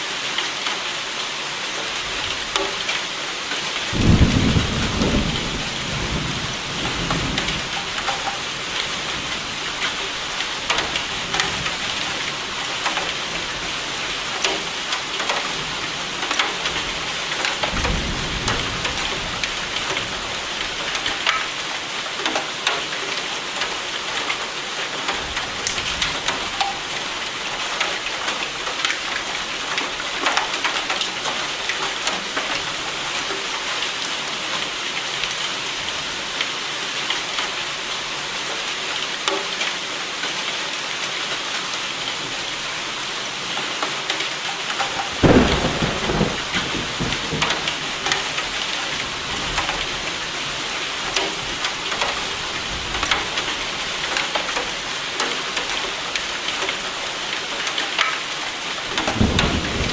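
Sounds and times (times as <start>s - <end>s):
heavy rain: 0.0s - 59.9s
thunder rumbling: 3.9s - 8.2s, 45.2s - 48.1s, 59.0s - 59.9s.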